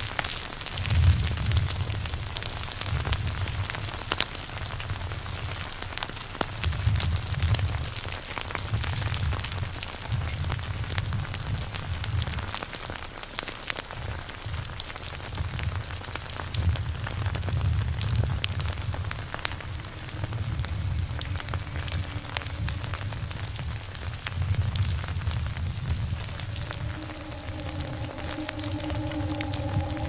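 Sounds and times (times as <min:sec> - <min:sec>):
low rumble: 0:18.2 - 0:30.0.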